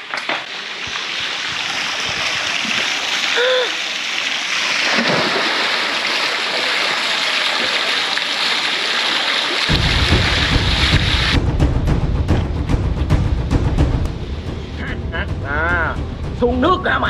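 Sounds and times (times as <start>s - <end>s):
running water hiss: 0.0s - 11.4s.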